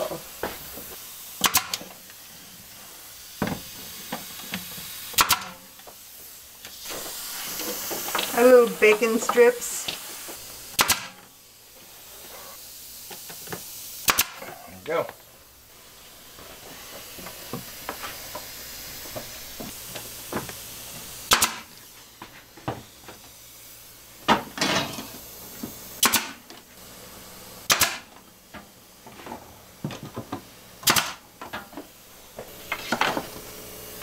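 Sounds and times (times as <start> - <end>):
air hiss: 0.0 - 29.0
nail gun shots: 1.4 - 1.8, 5.2 - 5.6, 10.8 - 11.2, 14.0 - 14.4, 21.3 - 21.7, 26.0 - 26.4, 27.7 - 28.1, 30.8 - 31.2.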